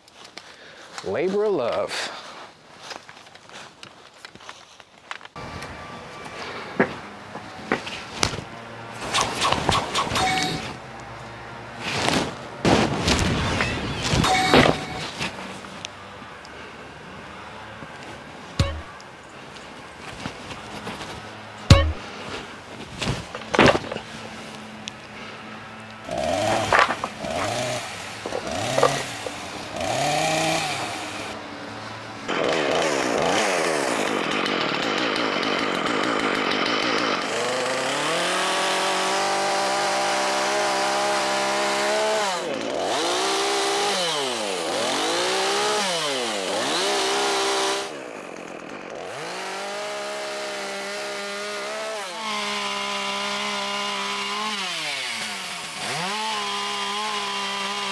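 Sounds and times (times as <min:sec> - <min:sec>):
chainsaw running: 0:10.1 - 0:10.9, 0:13.6 - 0:15.7, 0:18.6 - 0:19.0, 0:23.2 - 0:31.4, 0:32.0 - 0:57.9.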